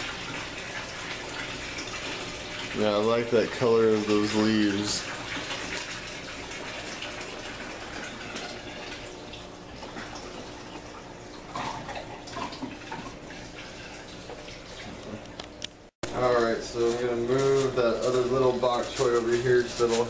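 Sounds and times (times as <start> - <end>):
water trickling and splashing: 0.0 - 15.3.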